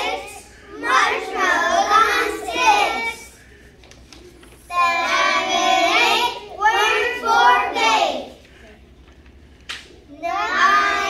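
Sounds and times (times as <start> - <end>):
children singing in unison: 0.0 - 3.2, 10.3 - 11.0.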